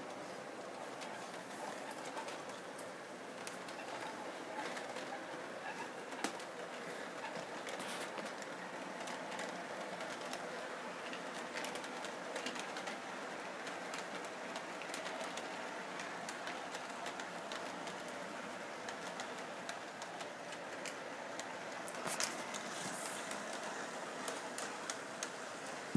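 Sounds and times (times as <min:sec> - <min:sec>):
model train running: 0:00.0 - 0:25.9
wheels clicking over rail joints: 0:00.0 - 0:25.9.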